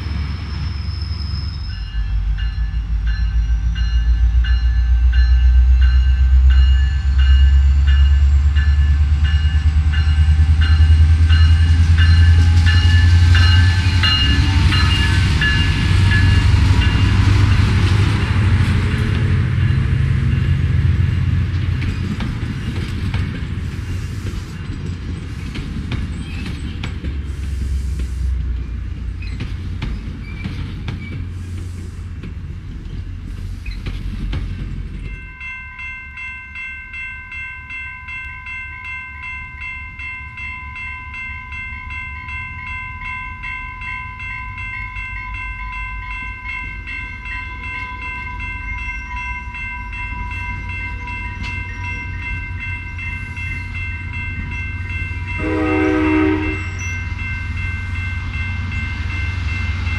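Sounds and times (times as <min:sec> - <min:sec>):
train wheels rumbling on rails: 0:00.0 - 0:36.6, 0:39.2 - 0:59.9
crossing warning bell ringing: 0:00.9 - 0:23.6, 0:35.0 - 0:59.9
train horn blast: 0:55.3 - 0:56.8.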